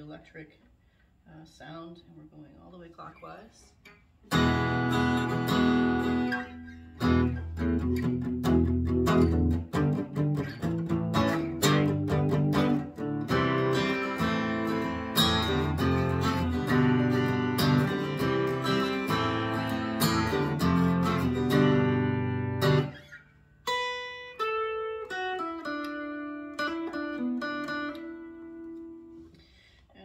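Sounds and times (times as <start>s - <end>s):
electric guitar strummed chords: 4.3s - 23.0s.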